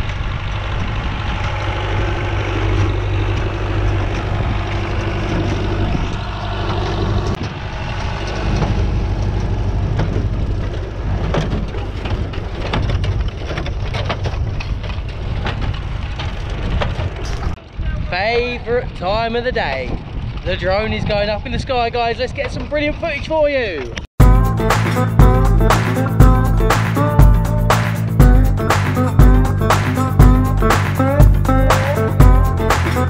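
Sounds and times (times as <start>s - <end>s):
tractor diesel engine running: 0.0s - 17.8s, 24.2s - 33.0s
baler knocking and clanking: 24.2s - 33.0s.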